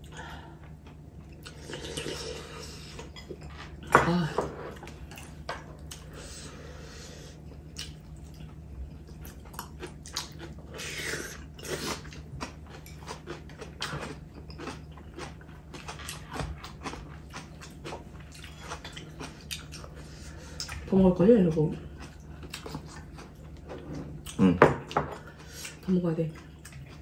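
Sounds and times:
chewing and slurping: 0.7 - 3.8, 7.3 - 20.9, 21.8 - 24.5.

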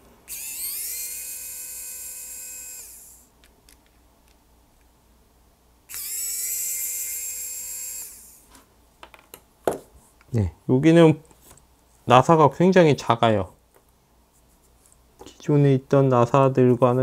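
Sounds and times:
electric screwdriver whine: 0.3 - 3.3, 5.9 - 8.5.

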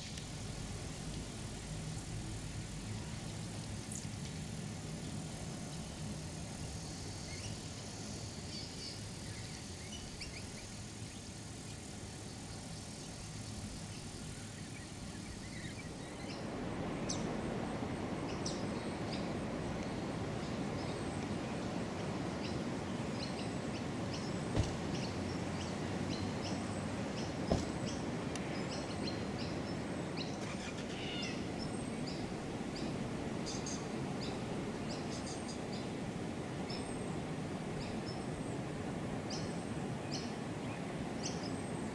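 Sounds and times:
steady background noise: 0.0 - 41.9
birds chirping: 6.7 - 36.0.

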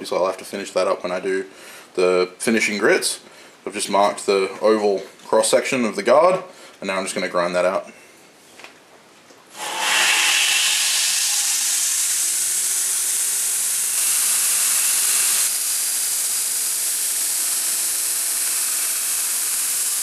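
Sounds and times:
grinder belt hissing: 9.5 - 20.0
motor whine rising in pitch: 9.6 - 20.0
steel grinding on a belt: 9.6 - 20.0.

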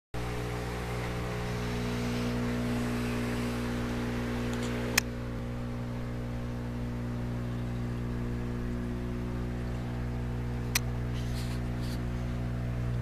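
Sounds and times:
electric pumps humming: 0.2 - 13.0
sharp click: 4.5 - 5.1, 10.7 - 10.9.

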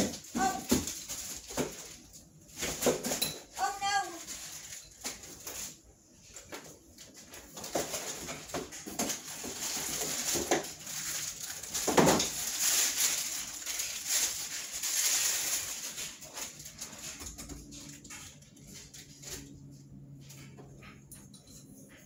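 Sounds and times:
cardboard packaging rustling: 0.0 - 19.5.

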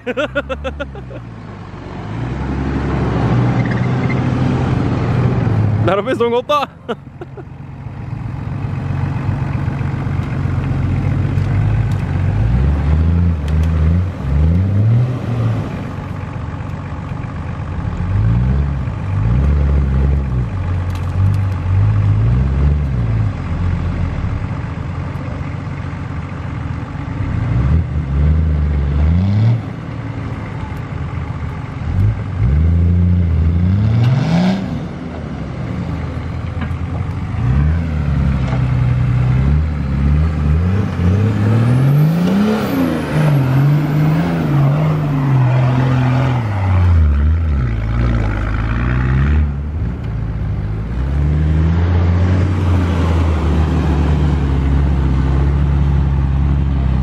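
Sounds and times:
suv engine revving: 8.7 - 16.2, 31.9 - 57.0.

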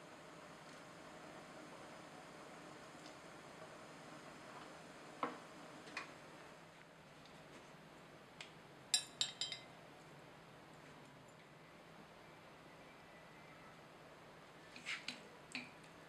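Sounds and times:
metal strainer clinking on glass: 9.0 - 9.7.

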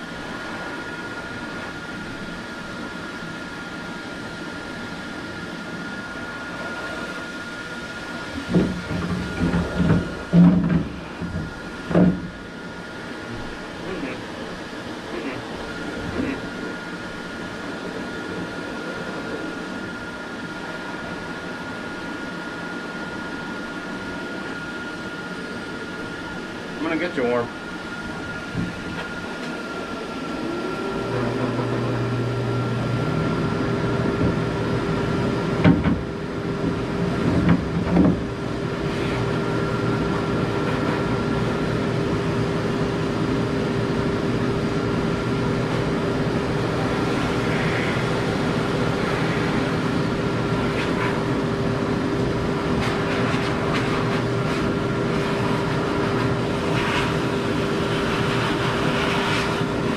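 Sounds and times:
pet dryer blowing air: 0.0 - 59.9
knocks: 8.5 - 12.3.

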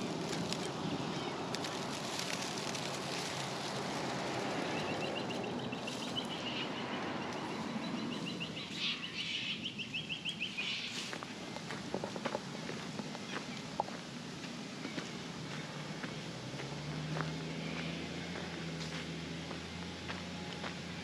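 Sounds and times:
outdoor background noise: 0.0 - 21.0
bird trilling: 4.8 - 11.0.

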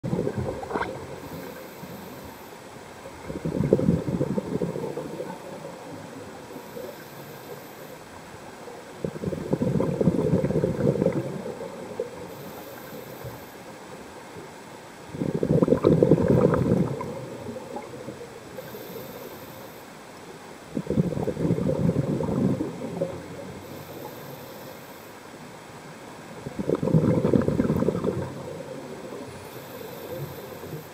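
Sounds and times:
diver's exhaled bubbles gurgling: 0.0 - 1.6, 3.0 - 7.1, 8.9 - 12.6, 15.1 - 18.8, 20.7 - 24.1, 26.4 - 30.9
regulator hissing on inhale: 1.2 - 2.7, 6.4 - 8.2, 12.2 - 13.8, 18.5 - 20.0, 23.6 - 25.3, 29.2 - 30.9.

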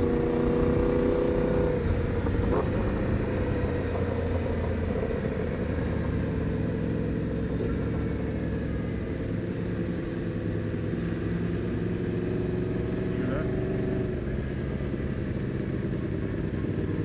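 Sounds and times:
motorcycle engine running steadily: 0.0 - 17.0.

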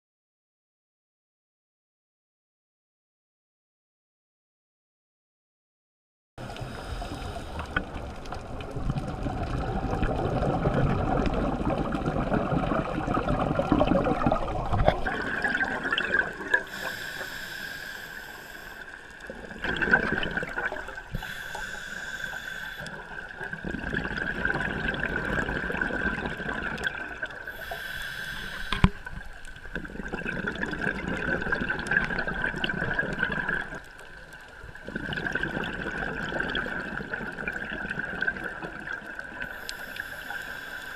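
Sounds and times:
hissing inhales through regulator: 6.4 - 8.2, 16.3 - 19.5, 20.9 - 23.3, 27.4 - 29.4, 39.4 - 40.9
gurgling exhaust bubbles: 7.8 - 16.7, 19.4 - 21.1, 23.4 - 27.2, 29.8 - 33.8.

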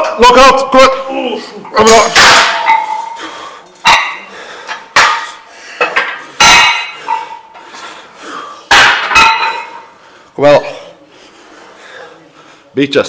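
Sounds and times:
steel weight plates clanking: 1.8 - 7.5, 8.7 - 9.9.

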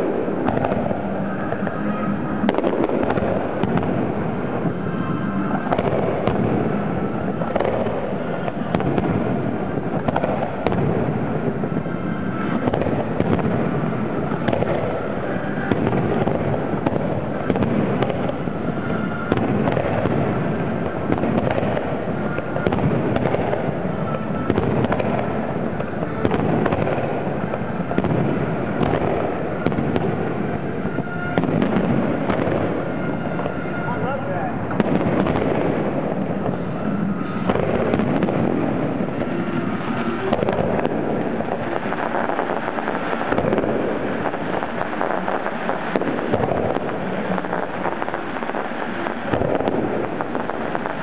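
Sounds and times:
fireworks shells launching and bursting: 0.0 - 51.0.

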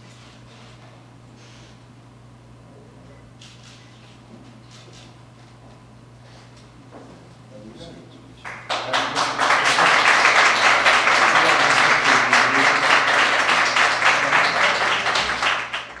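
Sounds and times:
audience applauding: 8.4 - 16.0.

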